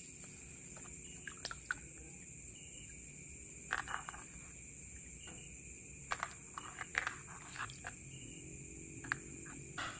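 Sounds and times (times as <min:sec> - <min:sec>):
high-pitched insect trill: 0:00.0 - 0:09.9
water sloshing in plastic basin: 0:00.2 - 0:02.1.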